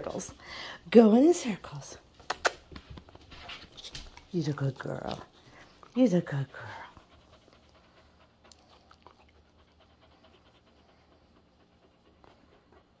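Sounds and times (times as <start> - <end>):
dog panting softly: 3.0 - 13.0.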